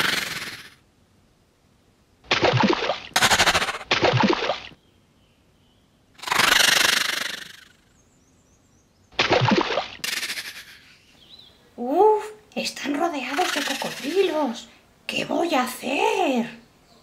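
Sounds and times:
crocodile growls: 0.0s - 0.8s, 6.2s - 7.8s
fast rattling burst: 2.5s - 3.9s.

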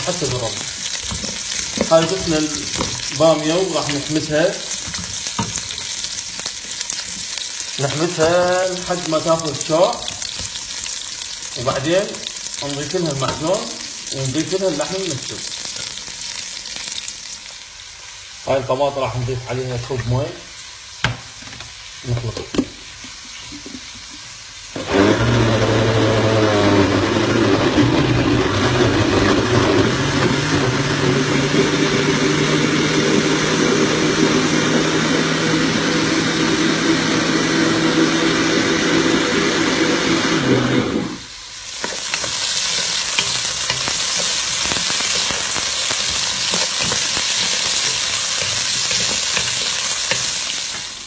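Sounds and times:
blender running: 0.0s - 6.1s, 24.7s - 51.0s
okra sizzling in oil: 0.0s - 51.0s.

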